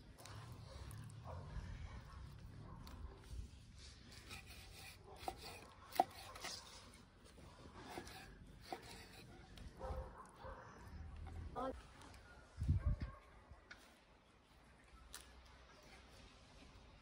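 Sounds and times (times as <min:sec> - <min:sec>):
knife slicing liver: 0:07.8 - 0:09.2.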